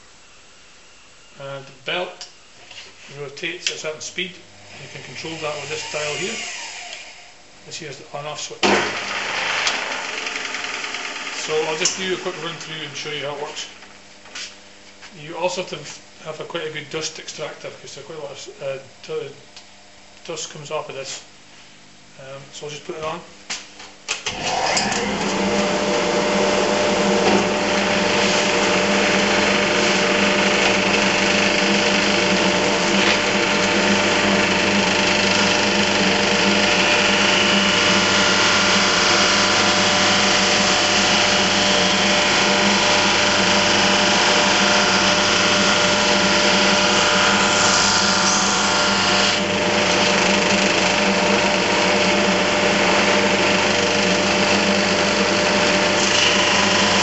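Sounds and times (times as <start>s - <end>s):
drum sander running: 8.8s - 14.5s, 24.3s - 57.0s.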